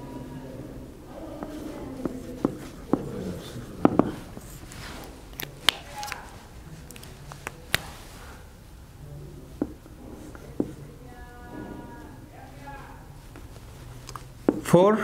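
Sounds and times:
marker writing on whiteboard: 1.3 - 5.2
pen tapping on board: 3.8 - 4.2.

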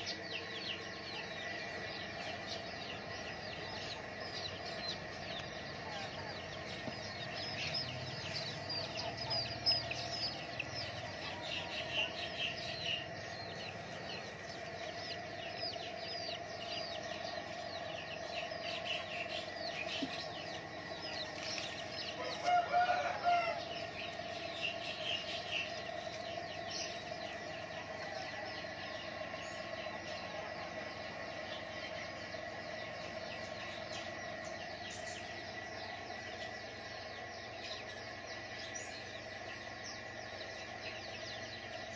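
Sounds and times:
small birds chirping: 0.0 - 41.9
steady hum: 0.0 - 41.9
rooster crowing: 22.1 - 24.1, 27.8 - 29.1.

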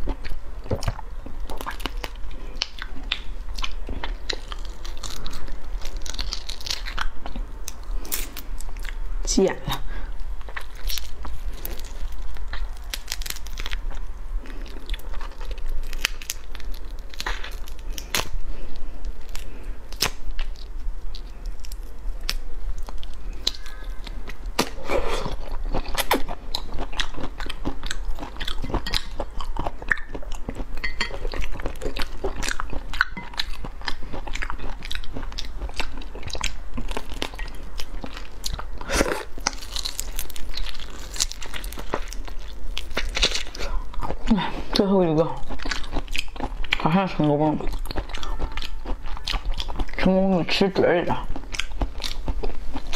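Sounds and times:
sucking and chewing: 0.0 - 52.9
prawn shell crunching: 1.5 - 9.0, 10.4 - 44.8.

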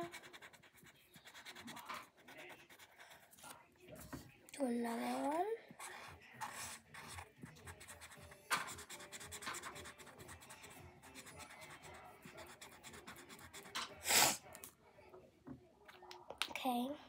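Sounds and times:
colouring tool scratching on paper: 0.0 - 3.6, 4.9 - 14.2.

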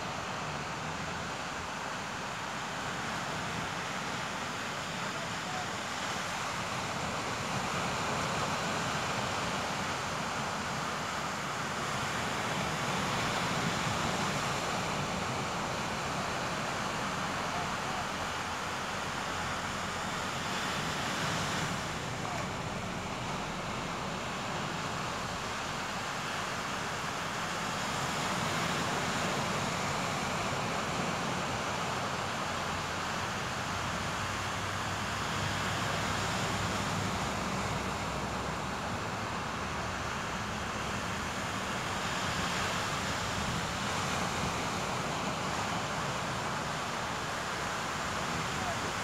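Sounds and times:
small waves breaking on beach: 0.0 - 49.0.

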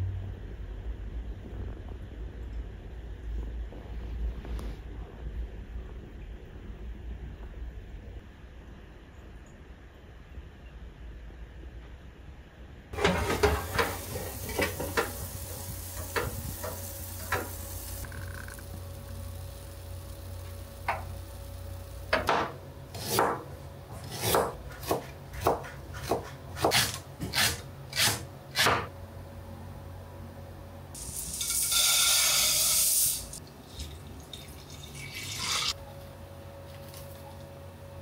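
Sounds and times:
water running from tap: 13.0 - 20.3, 31.0 - 35.7
knife chopping on cutting board: 22.3 - 28.9
water poured into pot: 31.0 - 35.8.

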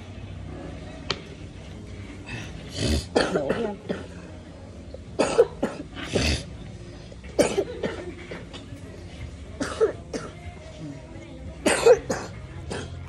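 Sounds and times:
person coughing: 2.8 - 4.2, 5.2 - 6.4, 7.4 - 8.4, 9.6 - 10.4, 11.6 - 12.9.

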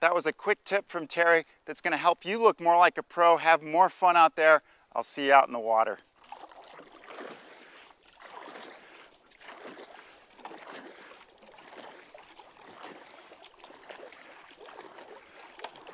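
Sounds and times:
paddle splashing through water: 6.0 - 15.9.

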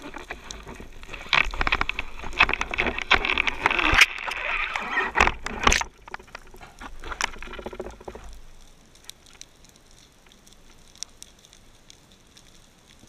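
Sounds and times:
underwater rush and bubbling: 0.0 - 9.4
sharp underwater clicks: 0.0 - 13.0.

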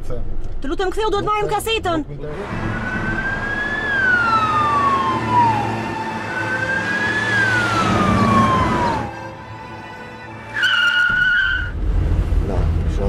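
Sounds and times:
low traffic rumble: 0.0 - 13.0
police siren wailing: 2.5 - 11.7.

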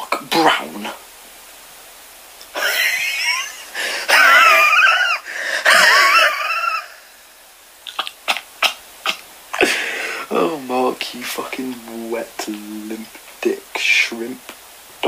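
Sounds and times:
person wheezing laughter: 2.6 - 7.2.

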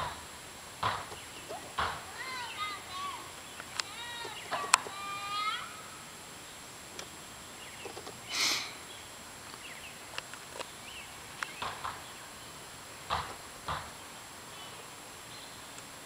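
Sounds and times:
small birds chirping: 0.0 - 16.0
faint sharp clicks: 3.4 - 4.9, 11.4 - 12.0.

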